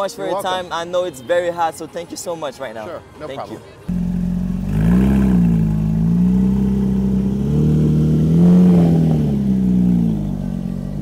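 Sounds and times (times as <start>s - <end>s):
sports car engine idling and revving: 3.9s - 11.0s.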